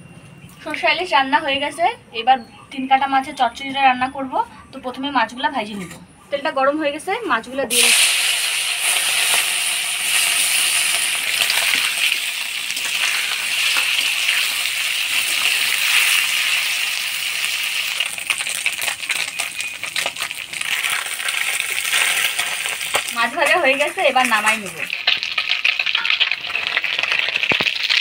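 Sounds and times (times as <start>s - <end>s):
fish sizzling in hot oil: 7.7s - 28.0s.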